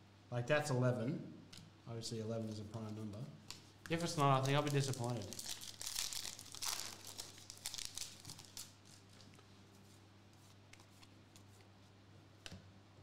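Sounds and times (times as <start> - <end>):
foil pack crinkling: 3.9 - 9.4.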